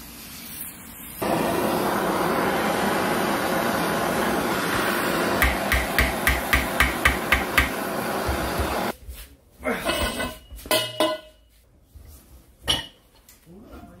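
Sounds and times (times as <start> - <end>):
blowtorch flame hissing: 0.0 - 9.0
hammer tapping on steel: 5.4 - 7.8.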